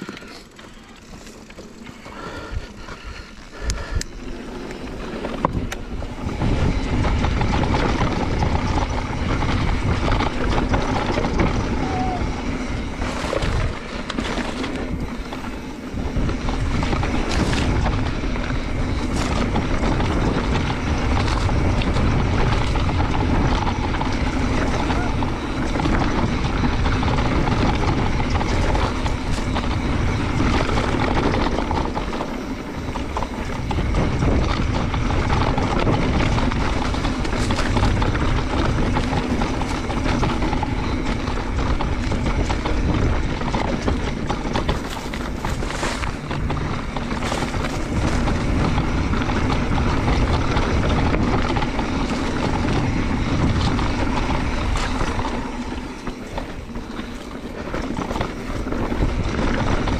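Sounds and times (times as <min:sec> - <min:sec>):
bike rattling over dirt trail: 0:00.0 - 0:59.9
wind buffeting microphone: 0:02.2 - 0:59.9.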